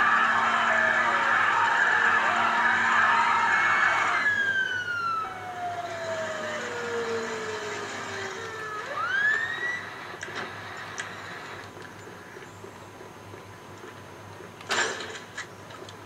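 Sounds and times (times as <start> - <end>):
electronic police siren: 0.0 - 10.2.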